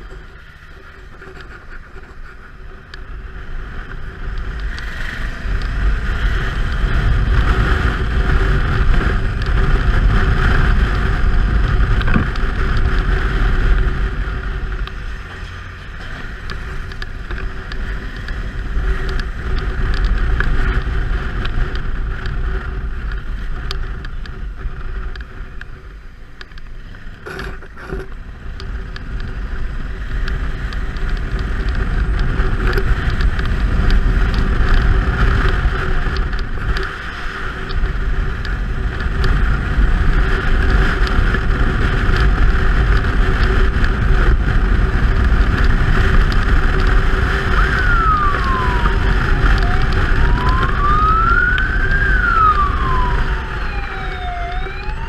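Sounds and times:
motorcycle engine: 0:00.0 - 0:55.0
wind rush on microphone: 0:00.0 - 0:55.0
siren wailing: 0:47.2 - 0:55.0.

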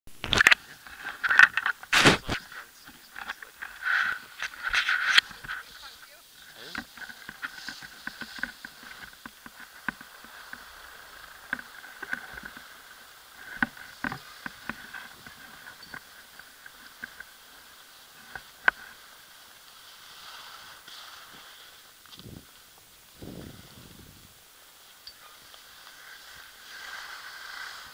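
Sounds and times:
skis sliding over snow: 0:00.3 - 0:27.9.

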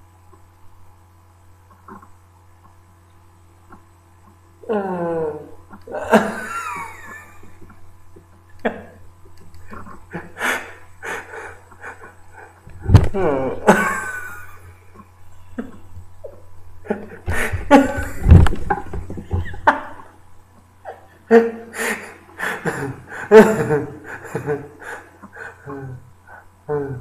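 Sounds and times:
steady low hum: 0:00.0 - 0:27.0
man laughing: 0:04.6 - 0:07.8, 0:08.5 - 0:09.1, 0:09.7 - 0:14.8, 0:15.4 - 0:20.2, 0:20.8 - 0:27.0.

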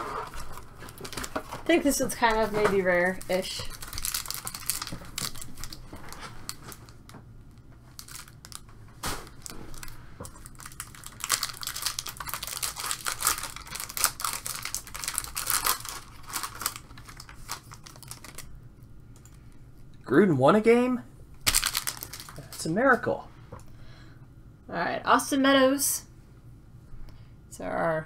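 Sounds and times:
foil wrapper crinkling and tearing: 0:00.1 - 0:07.1, 0:07.9 - 0:18.6, 0:21.5 - 0:22.7
foil wrapper snapping: 0:03.0 - 0:07.2, 0:07.9 - 0:18.5, 0:21.4 - 0:22.6.

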